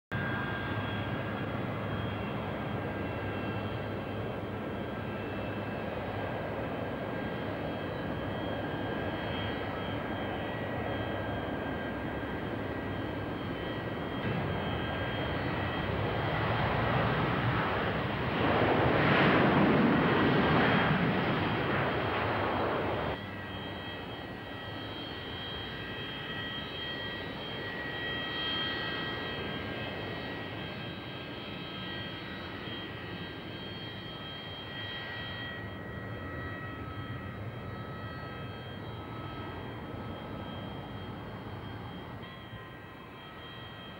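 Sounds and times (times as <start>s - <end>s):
jet engine whine: 0.1s - 43.9s
jet engines rushing: 0.2s - 43.8s.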